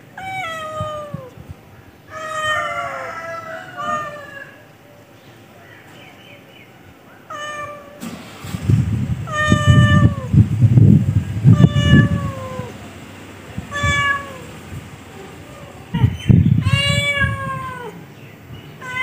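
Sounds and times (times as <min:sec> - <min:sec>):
cat meowing: 0:00.2 - 0:01.4, 0:02.1 - 0:04.6, 0:07.3 - 0:08.4, 0:09.2 - 0:10.4, 0:11.4 - 0:12.8, 0:13.6 - 0:14.6, 0:15.3 - 0:18.0, 0:18.8 - 0:19.0
heavy low rumbling: 0:07.7 - 0:19.0.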